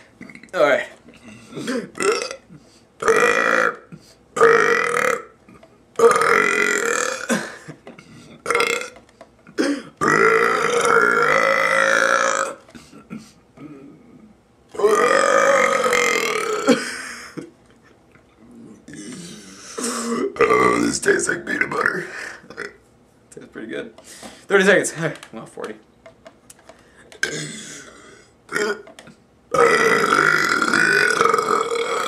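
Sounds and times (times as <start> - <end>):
man burping loudly: 1.2 - 13.9, 14.8 - 17.5, 18.8 - 21.1, 27.2 - 28.9, 29.5 - 32.0.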